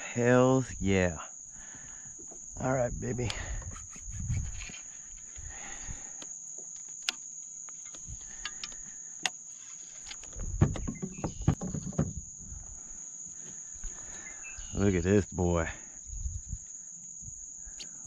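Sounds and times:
insects droning: 0.0 - 18.0
knocks on plastic kayak: 10.5 - 12.2.

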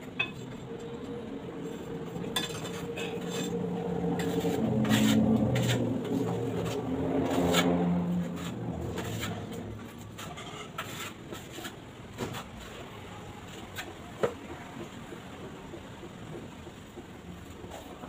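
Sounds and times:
passing engine hum: 0.6 - 10.8
trowel scraping and tapping tiles: 1.6 - 12.7.

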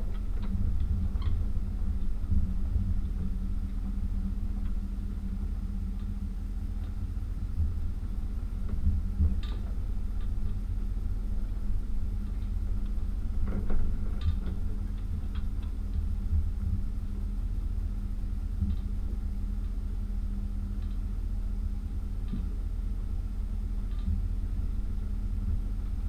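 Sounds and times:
faint hum: 0.0 - 26.0
light clicks and rattles: 8.6 - 10.7, 11.4 - 16.8.

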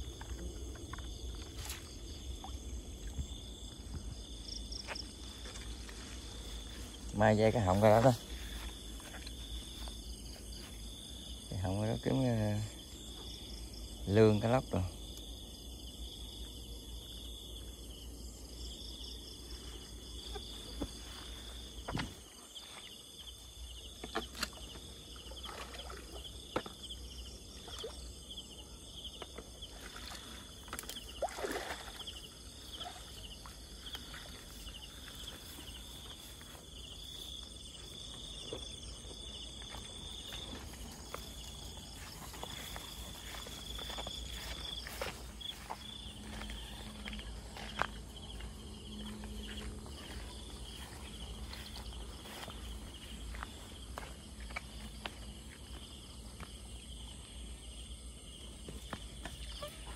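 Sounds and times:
insects chirping: 0.0 - 59.9
water splashes: 24.2 - 26.7, 29.6 - 35.8.

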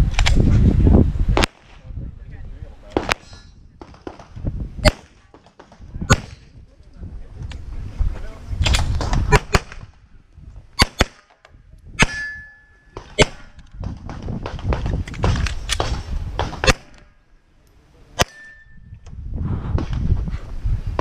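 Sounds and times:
wind rumble on microphone: 0.0 - 10.8, 11.5 - 17.1, 17.9 - 21.0
pistol shots: 2.9 - 6.4, 10.8 - 11.3, 13.0 - 13.6, 15.1 - 17.1
steel target ringing: 12.0 - 13.0, 18.2 - 18.9.

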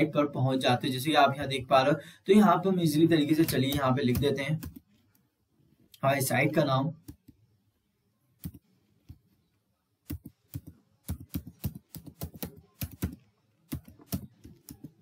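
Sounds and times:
typing on computer keyboard: 3.3 - 4.8, 8.4 - 8.6, 10.0 - 15.0.

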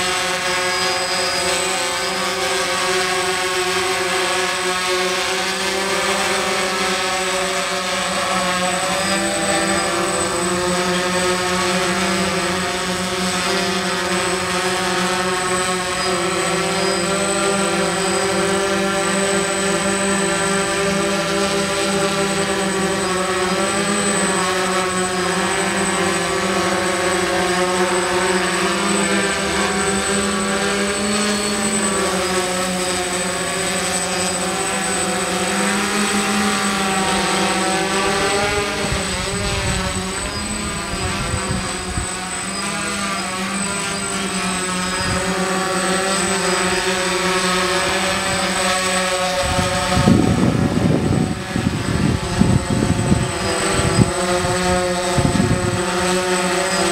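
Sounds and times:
drone motors whining: 0.0 - 56.9
wind buffeting on microphone: 38.4 - 42.2, 49.4 - 56.0.

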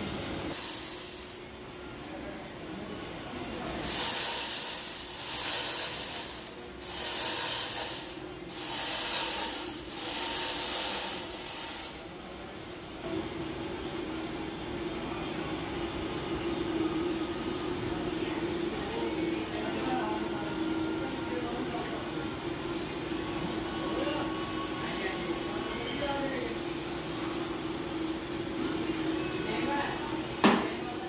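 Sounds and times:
ratchet pawl clicking: 3.8 - 12.0.

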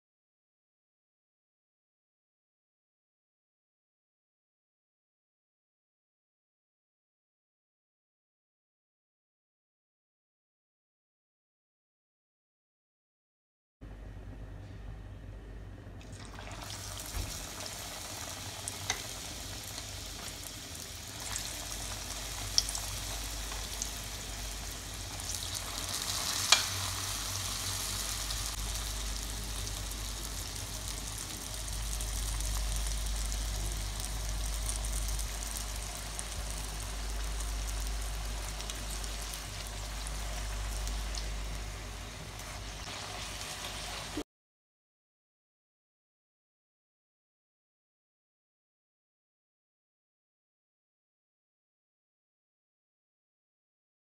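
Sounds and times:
deep-frying sizzle: 16.1 - 44.2.

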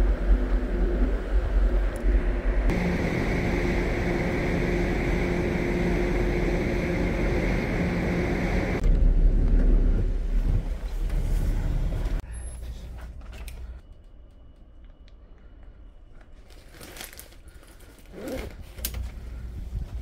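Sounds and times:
low rumble: 0.0 - 16.6
rustling of backpack packing: 16.2 - 20.0.

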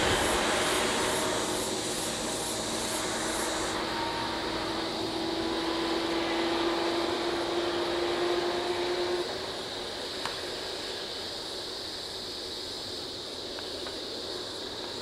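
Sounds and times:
high pulsing chirr: 0.0 - 9.8
vehicle engine running: 0.0 - 10.8.

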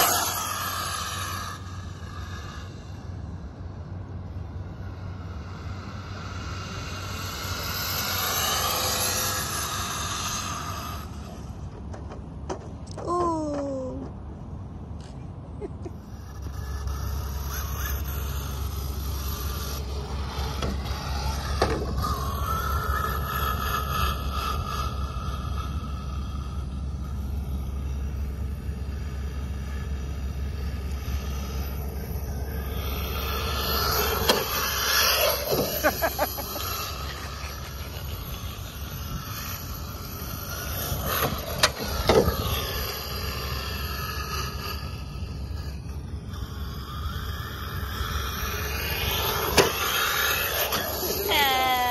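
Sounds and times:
electric toy truck motor whine: 0.0 - 12.3, 15.8 - 51.9
low steady rumble: 0.0 - 51.9
tyre and chassis noise: 0.0 - 51.9.

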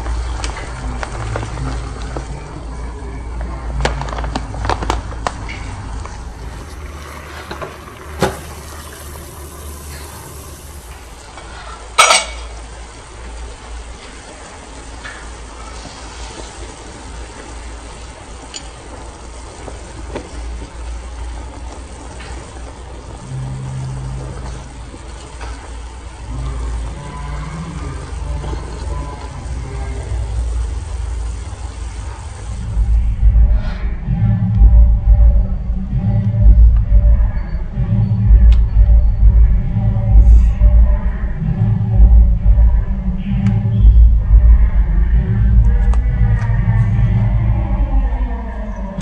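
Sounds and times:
noodles simmering in boiling water: 0.0 - 32.7
steady low hum: 0.0 - 49.0
plastic packet crinkling: 3.8 - 6.3.

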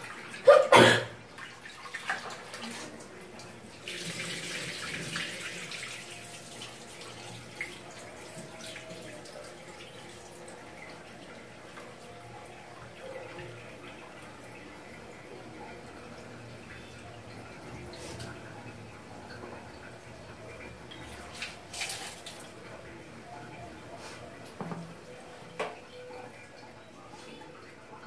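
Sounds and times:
tap water running and splashing: 0.0 - 28.0.

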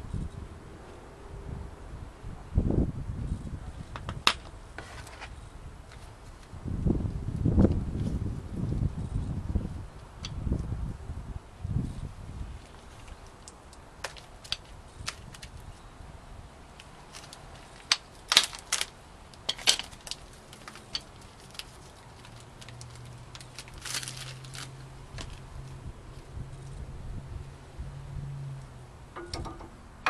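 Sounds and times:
metal brake pads clinking: 29.2 - 29.8.

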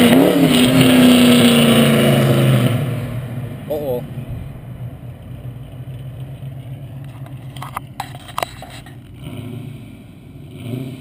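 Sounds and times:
car engine idling: 1.7 - 10.5.

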